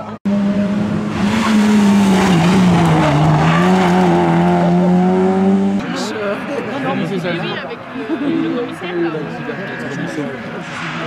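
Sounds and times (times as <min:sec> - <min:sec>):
rally car engine at high revs: 0:00.0 - 0:05.9
tyres skidding on loose surface: 0:01.1 - 0:05.6.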